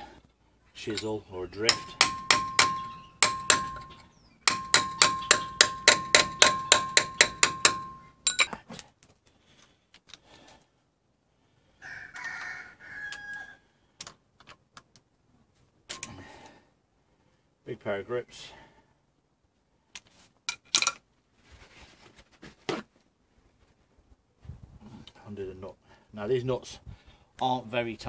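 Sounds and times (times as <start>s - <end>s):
tools clicking and scraping: 0.8s - 8.9s, 15.9s - 16.2s, 20.0s - 21.0s
hammer striking steel chisel: 0.9s - 8.6s.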